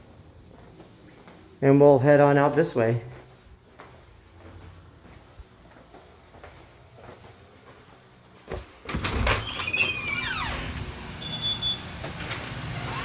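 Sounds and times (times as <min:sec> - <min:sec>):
steady background noise: 0:00.0 - 0:09.3.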